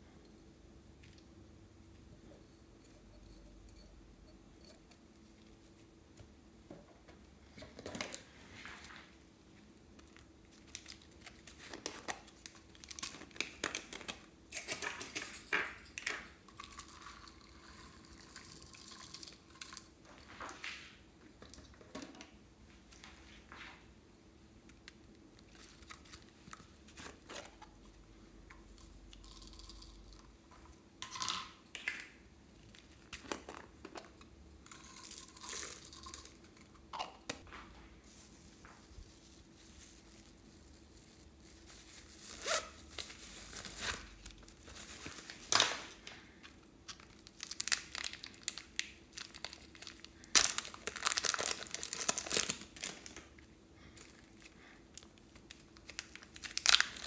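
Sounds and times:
plastic packaging crinkling: 10.0s - 14.2s, 38.6s - 53.4s, 54.0s - 57.0s.

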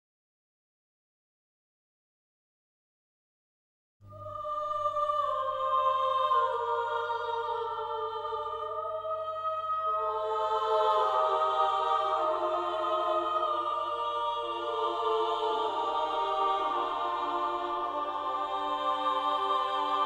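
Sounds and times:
slow sustained film music chords: 4.1s - 20.0s.

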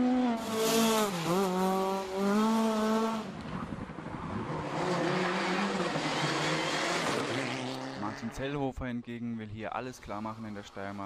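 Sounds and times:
rally car engine passing: 0.0s - 8.4s
second rally car engine: 0.0s - 8.4s.

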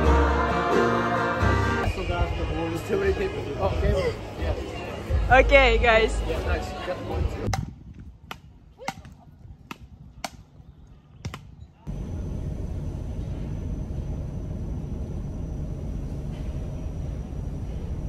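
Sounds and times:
vehicle rumbling in motion: 11.8s - 18.0s.

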